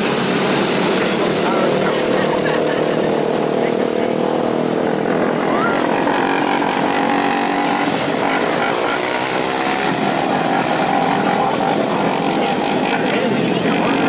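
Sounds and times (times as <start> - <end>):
racing car engines droning: 0.0 - 14.0.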